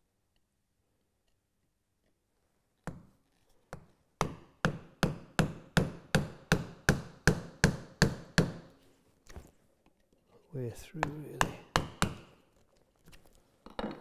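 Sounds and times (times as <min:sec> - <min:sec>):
mallet striking chisel into wood: 0:04.2 - 0:08.7, 0:11.0 - 0:12.4.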